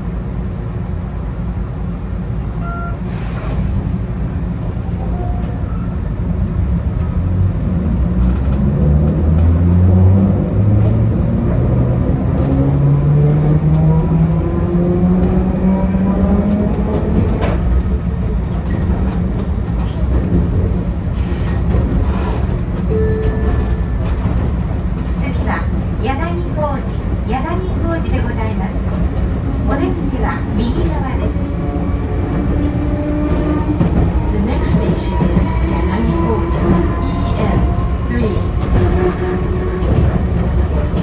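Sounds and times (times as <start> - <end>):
train running gear rumble: 0.0 - 41.0
train wheels clacking: 32.2 - 41.0.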